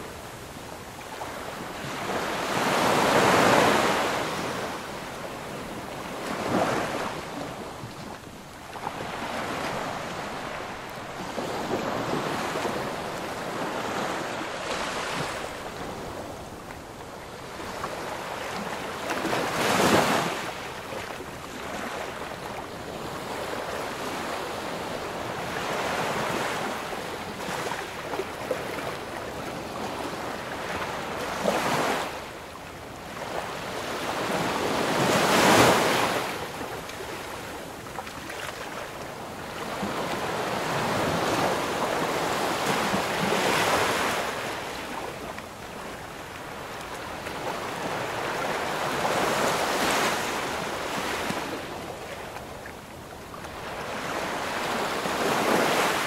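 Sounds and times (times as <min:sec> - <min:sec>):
waves breaking on shore: 0:00.0 - 0:56.0.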